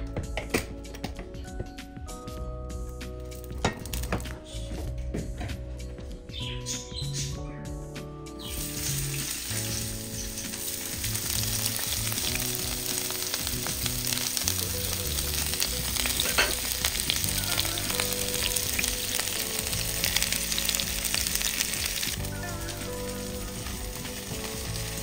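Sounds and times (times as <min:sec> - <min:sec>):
food sizzling in hot oil: 0:08.4 - 0:25.0.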